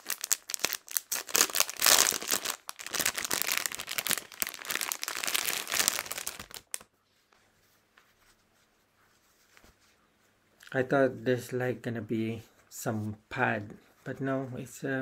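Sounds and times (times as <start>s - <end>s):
packaging crinkling: 0.0s - 6.9s.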